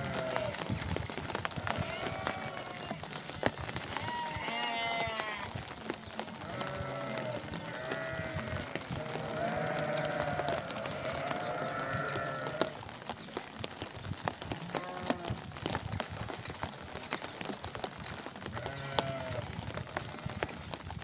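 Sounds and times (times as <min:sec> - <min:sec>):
sheep bleating: 0:00.0 - 0:00.6, 0:01.6 - 0:03.1, 0:04.0 - 0:05.5, 0:06.4 - 0:12.8, 0:18.6 - 0:19.4.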